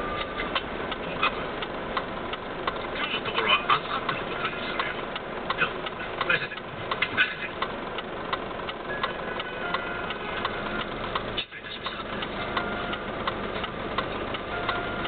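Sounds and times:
fast steady ticking: 0.0 - 15.0
vehicle engine idling: 0.0 - 15.0.

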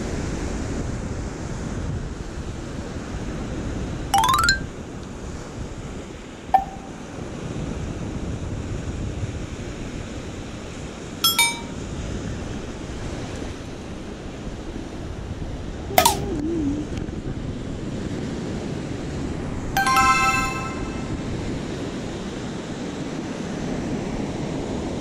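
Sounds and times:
ringing chime-like tones: 4.2 - 4.7, 6.6 - 7.0, 11.2 - 11.8, 16.0 - 16.2, 19.8 - 21.3
wind: 11.2 - 18.5.

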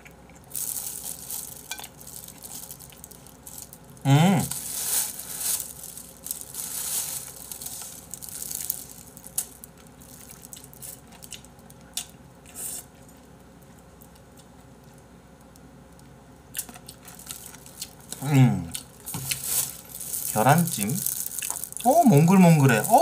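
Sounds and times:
plastic wrap crinkling: 0.4 - 11.8, 16.6 - 23.0
wet squishy chewing and sucking: 16.5 - 23.0.

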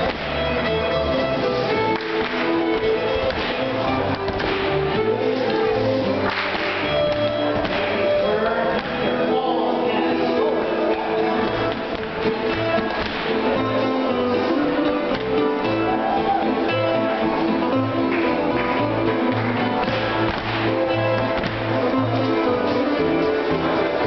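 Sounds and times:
feet tapping on floor: 0.0 - 9.0, 11.2 - 24.0
dance band playing: 0.0 - 24.0
guitar: 0.0 - 24.0.

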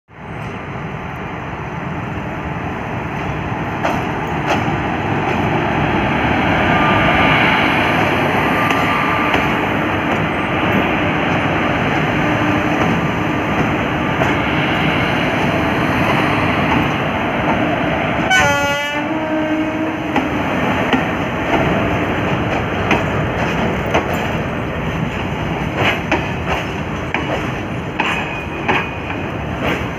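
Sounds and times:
train wheels rumbling on rail: 0.1 - 29.9
wheels clacking over rail joints: 3.2 - 5.6, 20.1 - 29.9
train horn: 8.4 - 9.8, 18.2 - 20.3.

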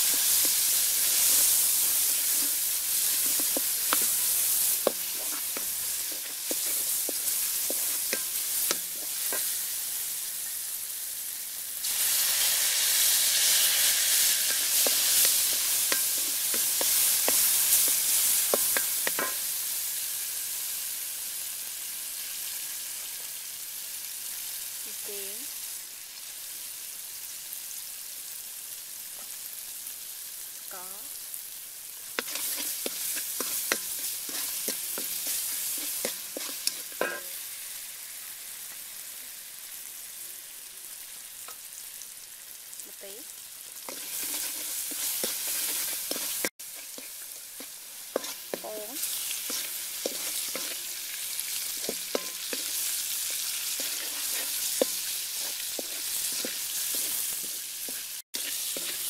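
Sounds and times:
wooden spatula scraping a wok: 0.0 - 9.8, 11.8 - 19.5, 32.2 - 37.4, 43.8 - 59.0
oil sizzling in a wok: 0.0 - 59.0.

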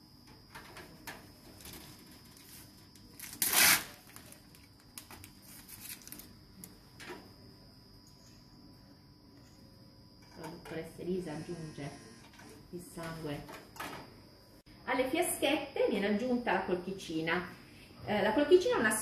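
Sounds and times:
faint high whine: 0.0 - 19.0
rustling tearing noise: 3.1 - 6.4.

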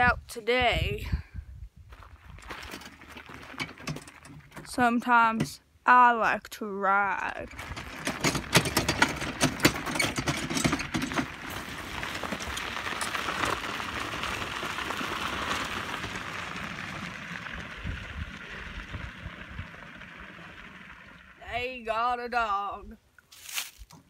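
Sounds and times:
footsteps on gravel: 1.9 - 4.8, 11.2 - 18.6, 23.3 - 24.0
cart tyres crunching on gravel: 1.9 - 5.5, 7.3 - 21.8, 23.3 - 24.0.

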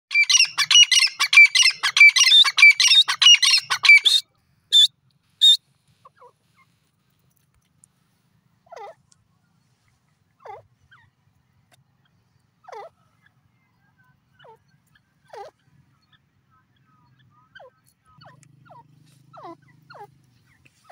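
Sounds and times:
francolin calling shrill notes: 0.1 - 4.2
faint short lower bird calls: 0.1 - 6.8, 9.6 - 20.9.

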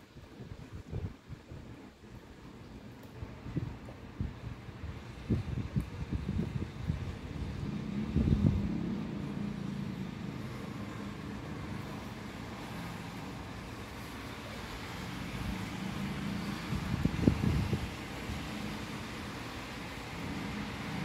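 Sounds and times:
steady rain hiss: 0.0 - 21.0
traffic on wet street: 1.6 - 21.0
low rumble: 6.0 - 13.6.

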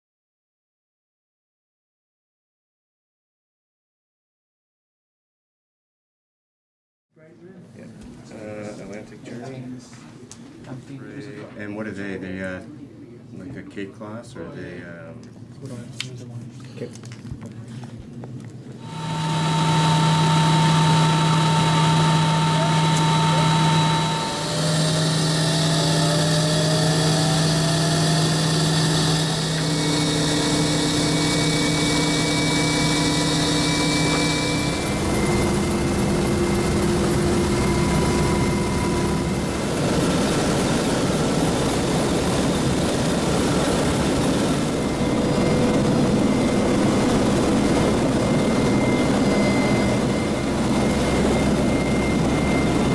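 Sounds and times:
helicopter cabin noise: 17.2 - 52.9.

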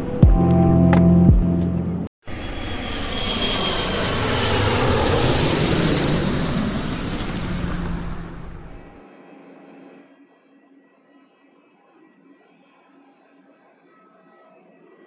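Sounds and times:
musical intro: 0.0 - 2.1
jet engines roaring: 1.7 - 9.0.

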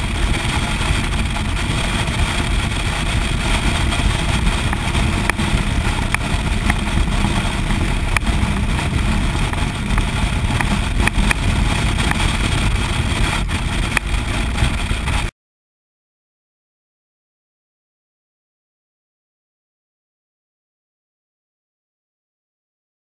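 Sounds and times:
motorcycle engine rumble: 0.0 - 15.3
wind rush on microphone: 0.0 - 15.3.

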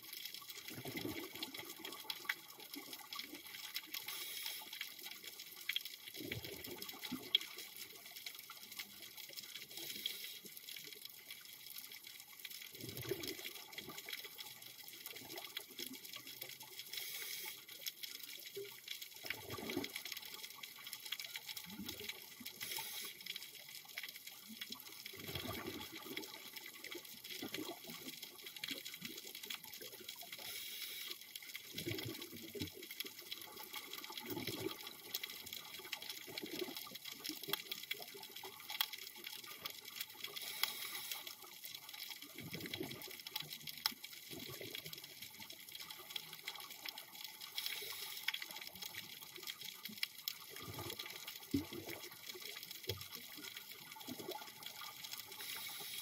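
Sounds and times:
exhaled bubbles rumbling: 19.3 - 20.0, 25.1 - 26.5
regulator hiss: 40.4 - 41.2, 55.4 - 56.0.

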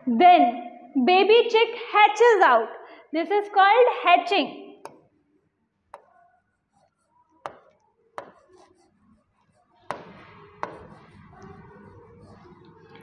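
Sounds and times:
stylus tapping on screen: 4.8 - 5.1, 5.9 - 11.6
faint stylus scratching: 6.0 - 13.0.

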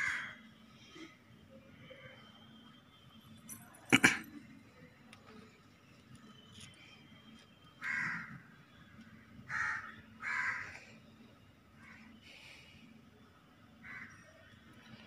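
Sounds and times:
crow cawing: 7.8 - 8.3, 9.5 - 10.8.

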